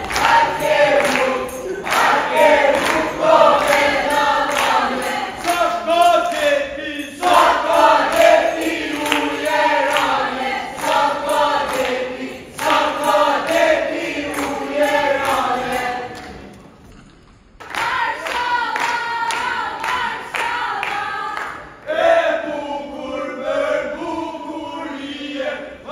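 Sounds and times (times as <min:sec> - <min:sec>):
handclaps: 0:00.0 - 0:06.6, 0:07.2 - 0:16.6, 0:17.6 - 0:21.8
tambourine beat: 0:00.0 - 0:16.2
group of women singing: 0:00.0 - 0:16.5, 0:17.6 - 0:25.9.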